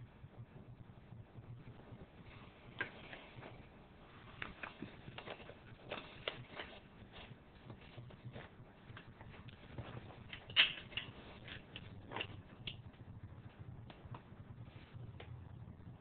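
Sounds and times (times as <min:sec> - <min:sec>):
paper crinkle: 0:04.2 - 0:12.5
paper envelope rustling: 0:04.3 - 0:12.4.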